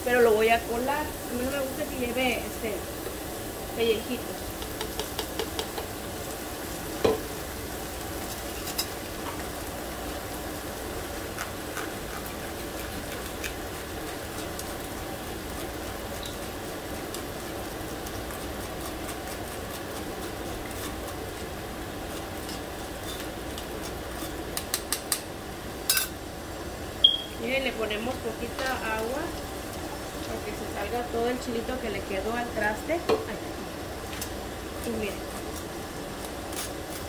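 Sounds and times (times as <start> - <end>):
food sizzling in frying pan: 0.0 - 37.0
spoon tapping on strainer: 4.6 - 5.8.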